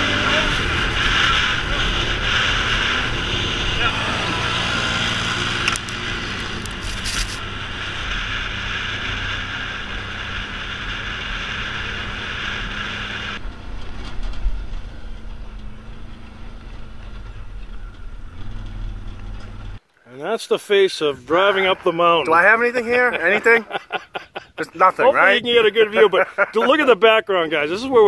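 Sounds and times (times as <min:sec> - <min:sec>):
atv engine running: 0:00.0 - 0:19.8
tyre noise on gravel: 0:05.5 - 0:07.4.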